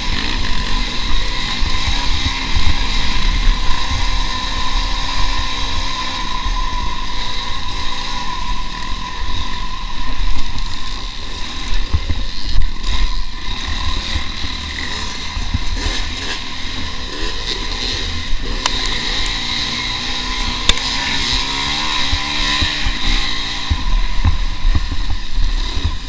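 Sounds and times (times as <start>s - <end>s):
wind rumble on microphone: 0.0s - 14.4s, 20.4s - 26.0s
dirt bike engine revving: 0.0s - 26.0s.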